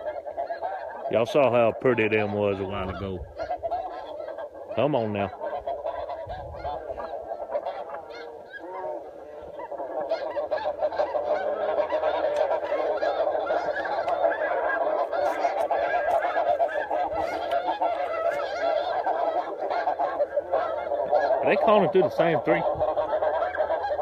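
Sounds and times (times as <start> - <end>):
geese honking: 0.0 - 24.0.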